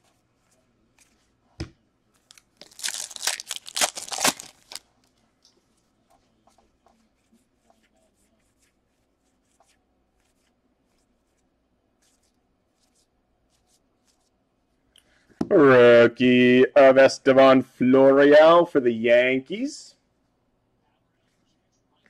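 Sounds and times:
papery rustling of cards: 0:02.1 - 0:05.8.

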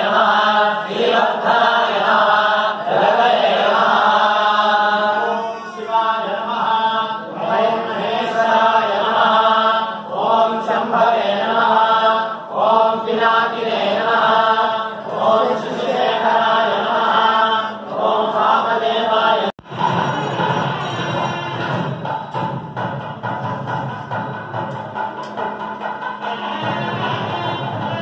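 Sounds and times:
group of men chanting: 0:00.0 - 0:19.6.

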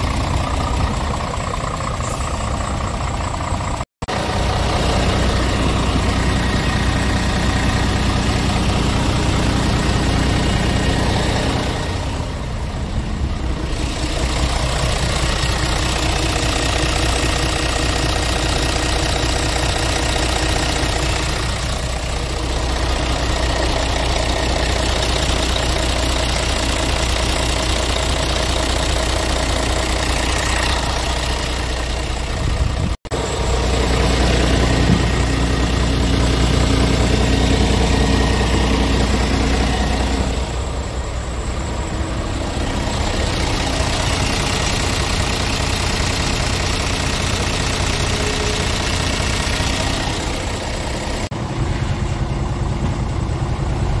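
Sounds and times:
truck diesel engine idling: 0:00.0 - 0:54.0.

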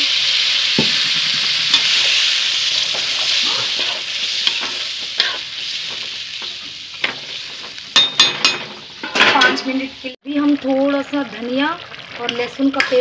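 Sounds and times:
gravy sizzling in a hot pan: 0:00.0 - 0:13.0
metal spoon scraping a pan: 0:00.8 - 0:09.8.

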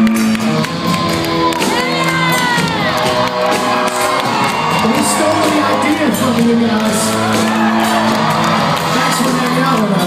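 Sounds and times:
crowd cheering: 0:00.0 - 0:10.0
live rock band playing: 0:00.0 - 0:10.0.

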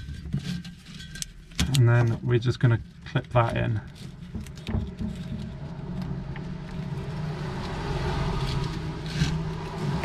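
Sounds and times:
low rumble: 0:03.8 - 0:10.0.

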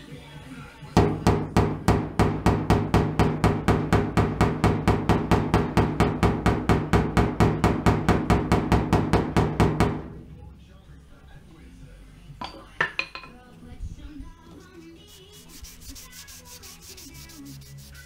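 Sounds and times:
hammer tapping on steel panel: 0:01.0 - 0:10.1.

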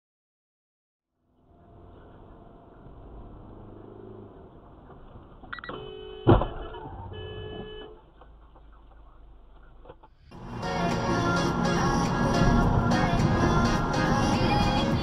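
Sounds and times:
road noise inside car: 0:01.1 - 0:15.0
car horn: 0:05.6 - 0:08.1
music: 0:10.4 - 0:15.0.

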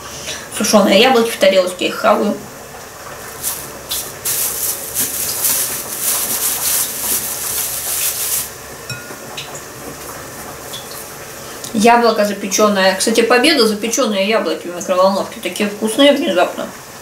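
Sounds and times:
plastic bag crinkling: 0:03.2 - 0:08.6.

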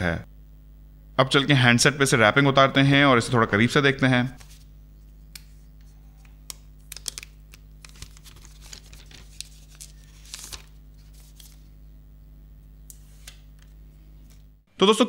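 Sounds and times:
plastic wrap peeling crackles: 0:06.3 - 0:11.7.

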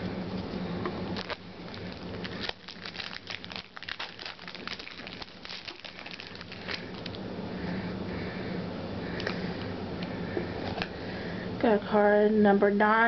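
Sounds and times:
trading cards crackling and rustling: 0:01.1 - 0:07.2.

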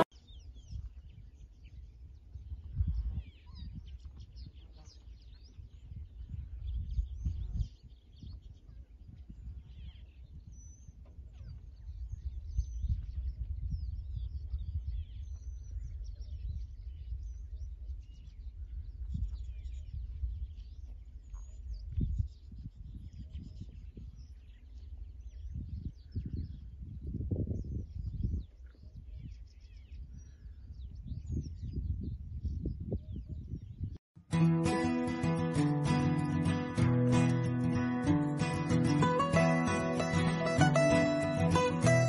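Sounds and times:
wind buffeting microphone: 0:00.0 - 0:34.0
small birds chirping: 0:00.0 - 0:42.0.

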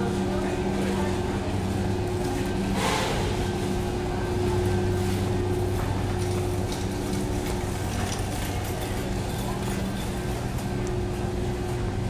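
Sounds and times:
low machinery hum: 0:00.0 - 0:12.0
store background noise: 0:00.0 - 0:12.0.

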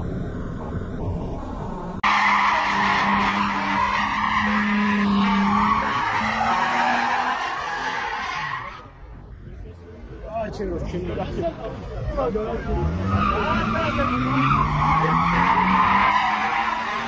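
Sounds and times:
car engine: 0:00.0 - 0:17.0
car tyres squealing: 0:02.0 - 0:09.1, 0:12.6 - 0:17.0.

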